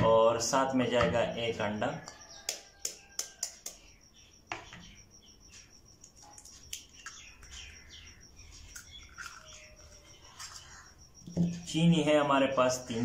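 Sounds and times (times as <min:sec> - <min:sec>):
birds chirping: 0:00.0 - 0:13.0
egg shell cracking: 0:06.0 - 0:07.8, 0:08.6 - 0:10.9.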